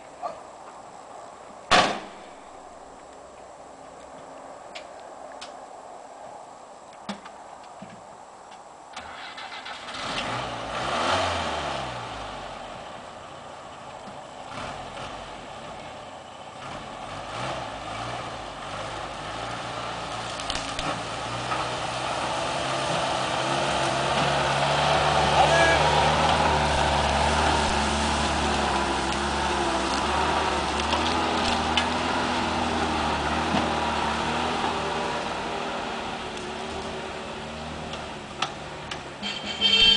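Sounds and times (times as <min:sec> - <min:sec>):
van engine starting and revving: 0:09.0 - 0:39.2.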